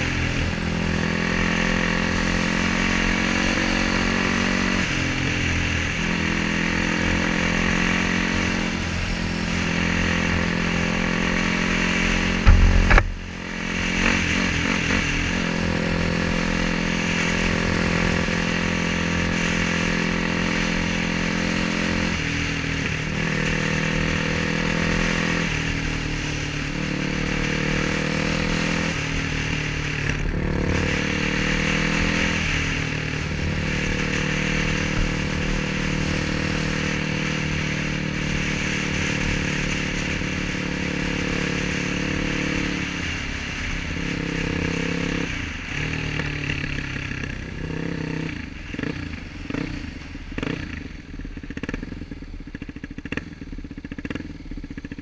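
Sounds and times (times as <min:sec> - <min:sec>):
motorcycle engine revving: 0:00.0 - 0:55.0
loud low thump: 0:12.4 - 0:14.0.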